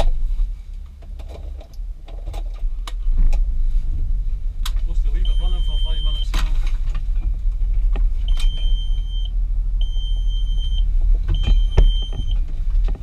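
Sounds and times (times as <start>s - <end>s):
car engine idling: 0.0s - 13.0s
long electronic beeps: 5.2s - 6.3s, 8.3s - 12.4s.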